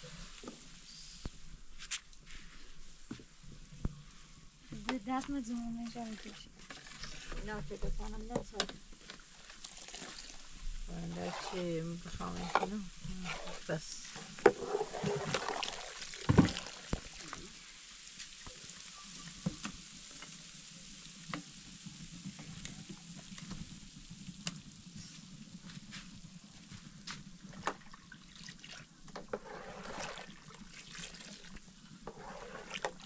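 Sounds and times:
butter sizzling in a pot: 4.6 - 27.5, 31.4 - 33.0.

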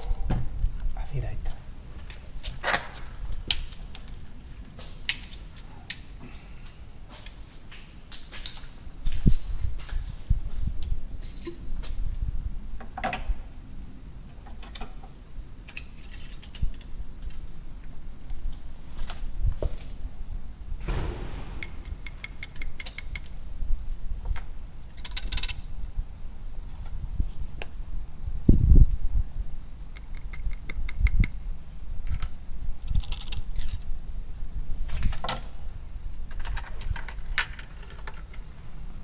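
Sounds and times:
dull thump: 20.8 - 23.2.

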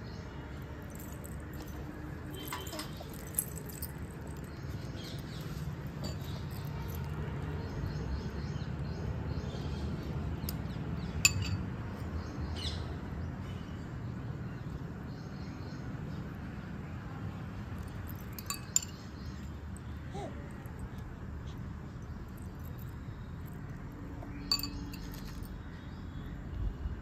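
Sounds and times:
birds chirping faintly: 0.0 - 27.0
metal spoon clinking glass bowl: 2.3 - 4.5, 11.3 - 11.6, 17.8 - 19.1, 24.4 - 25.5.

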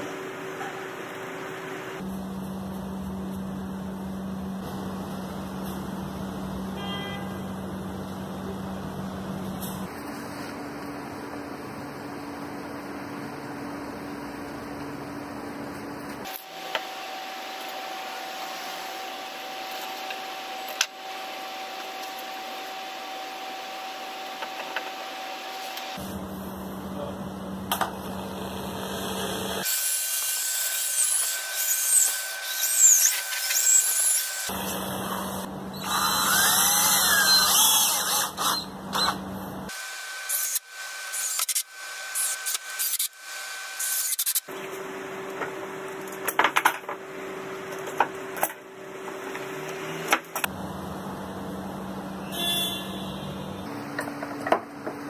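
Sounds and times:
drill press boring wood: 29.0 - 44.5.

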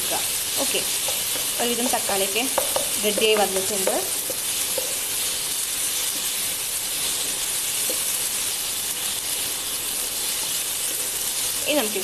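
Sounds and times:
food sizzling in hot oil: 0.0 - 12.0
wooden spatula stirring: 0.9 - 5.3.

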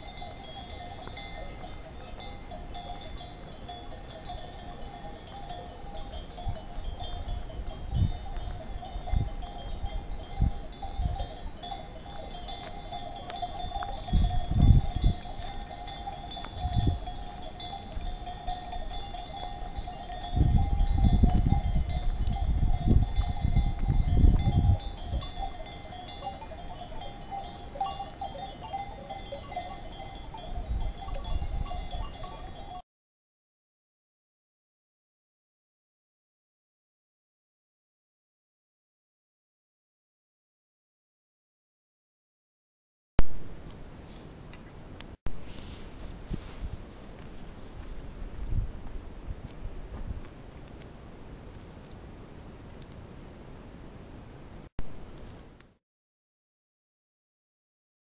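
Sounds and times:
livestock bells clanking: 0.0 - 32.8.

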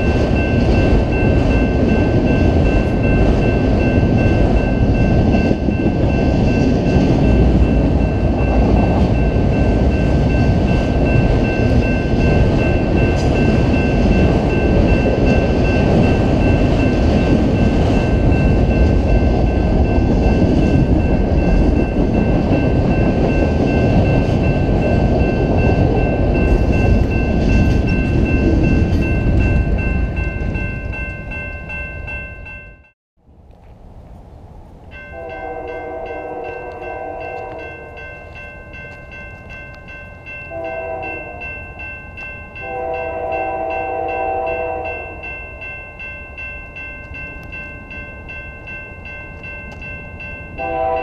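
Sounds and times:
train wheels rumbling and rattling: 0.0 - 32.6.

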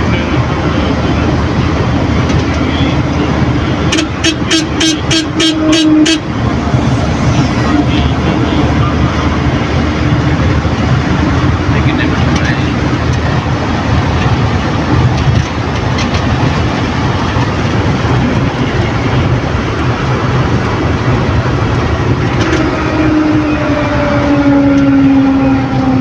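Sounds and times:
van engine and road noise: 0.0 - 26.0.

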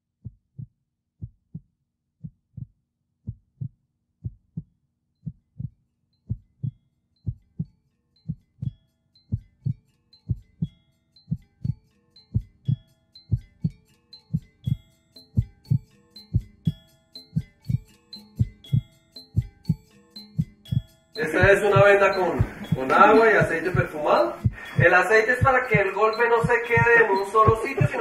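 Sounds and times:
heartbeat-like double thumps: 0.2 - 2.7, 3.3 - 4.7, 26.4 - 28.0
bell-like tinkling melody: 6.2 - 28.0.

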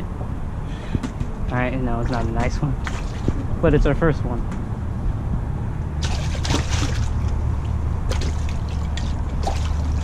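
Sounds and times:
fish splashing at water surface: 2.8 - 3.5, 6.0 - 10.0.

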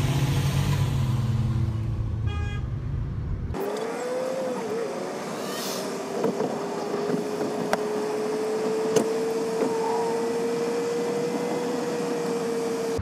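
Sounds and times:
street noise: 0.0 - 13.0
vehicle whine rising in pitch: 3.6 - 13.0.

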